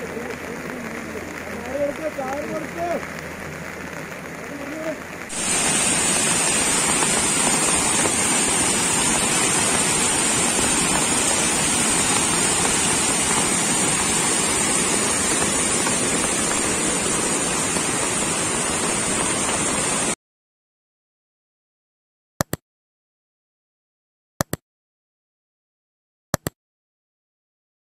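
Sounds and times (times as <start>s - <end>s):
water rushing over rocks: 0.0s - 20.2s.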